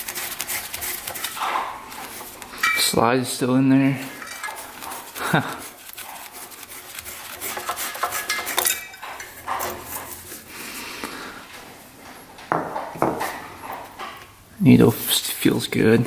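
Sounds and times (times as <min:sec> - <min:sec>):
small metal clicks and scrapes: 0:04.1 - 0:05.2, 0:05.8 - 0:10.3.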